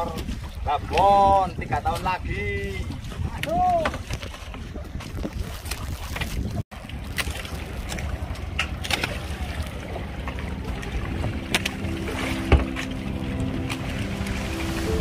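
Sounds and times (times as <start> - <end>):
wind and water noise: 0.0 - 15.0
low rumble: 7.6 - 15.0
background music with held notes: 10.0 - 15.0.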